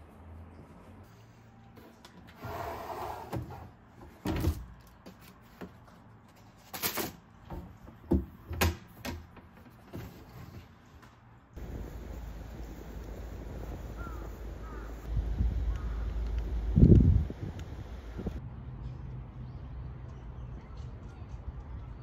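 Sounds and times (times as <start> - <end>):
drawer sliding: 2.3 - 4.6.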